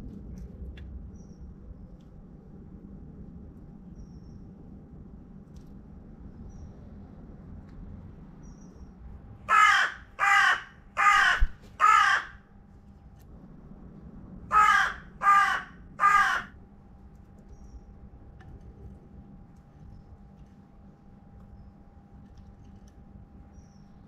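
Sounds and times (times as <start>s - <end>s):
crow cawing: 9.5s - 12.5s, 14.5s - 16.6s.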